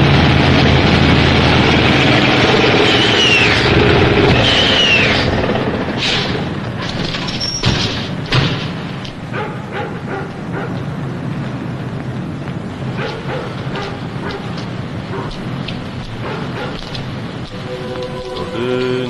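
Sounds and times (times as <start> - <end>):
truck engine running: 0.0 - 19.0
falling squeals: 2.5 - 8.2, 17.4 - 19.0.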